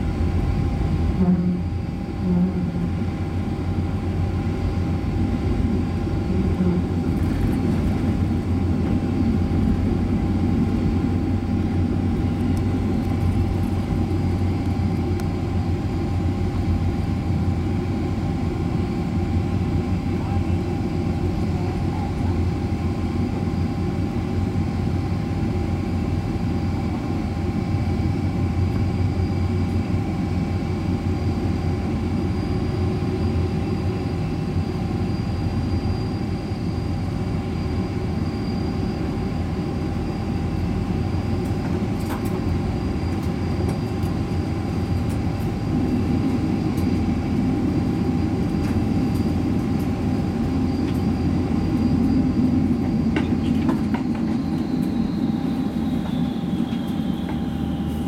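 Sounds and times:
machinery rumble and hum: 0.0 - 58.0
faint whining tones: 32.0 - 58.0.

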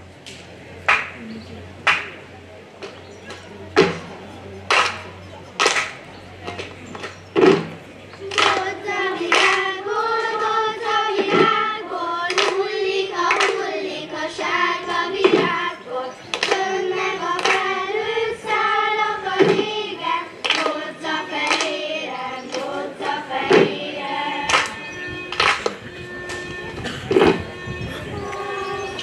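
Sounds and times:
children singing in unison: 8.2 - 29.0
sharp beats keeping time: 16.4 - 29.0.

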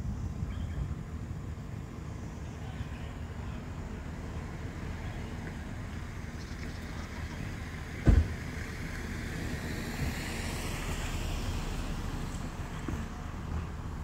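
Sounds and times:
wind rumble on microphone: 0.0 - 14.0
sharp low thump: 8.0 - 8.4.

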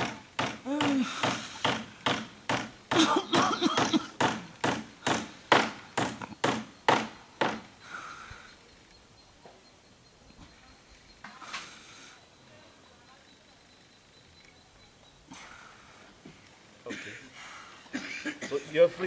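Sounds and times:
sharp knocks: 0.0 - 7.7
faint voices: 8.0 - 19.0.

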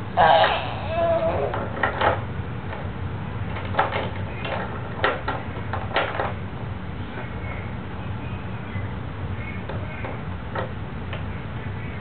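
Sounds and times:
steady low hum: 0.0 - 12.0
plastic toy knocks and clacks: 3.6 - 6.4.

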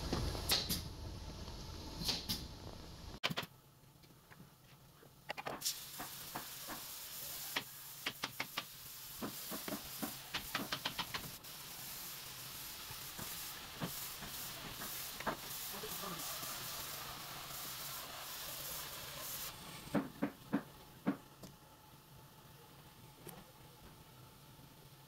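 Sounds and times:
steady hiss: 5.5 - 25.0.

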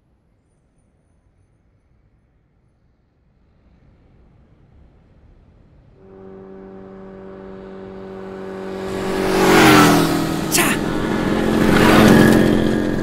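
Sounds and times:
motorcycle engines approaching: 6.1 - 13.0.

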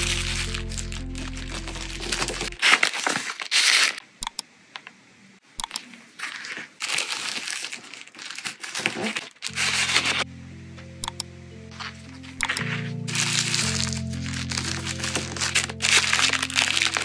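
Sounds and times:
background music: 0.0 - 2.6, 9.5 - 17.0
tissue paper rustling: 0.0 - 4.0, 6.1 - 10.2, 11.8 - 17.0.

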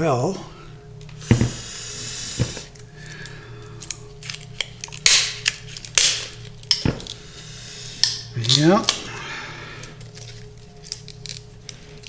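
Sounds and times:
plastic film crackling: 2.7 - 7.2, 9.8 - 12.0.

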